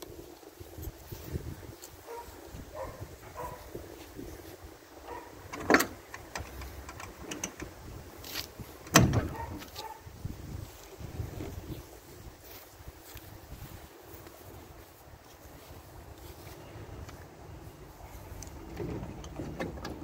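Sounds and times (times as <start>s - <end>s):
wind rumbling on microphone: 0.0s - 20.0s
sharp clunks: 8.9s - 9.5s.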